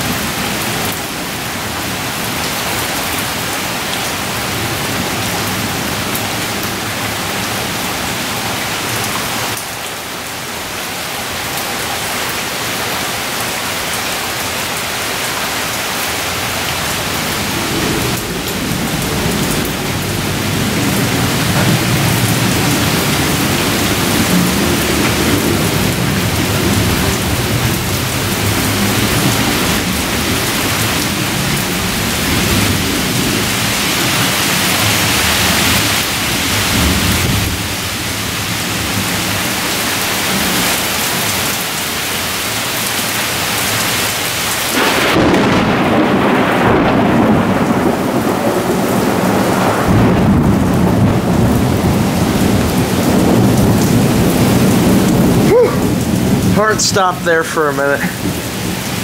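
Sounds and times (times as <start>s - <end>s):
heavy rain pouring: 0.0s - 59.0s
rolling thunder rumble: 16.9s - 39.3s, 44.7s - 59.0s.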